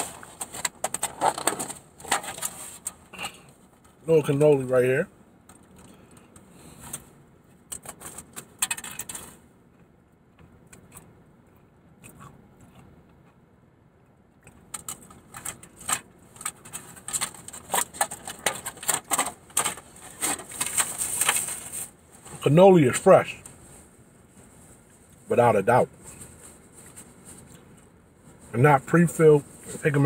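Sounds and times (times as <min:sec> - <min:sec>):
crunching of crisp pastry chewing: 0:09.6 - 0:20.5.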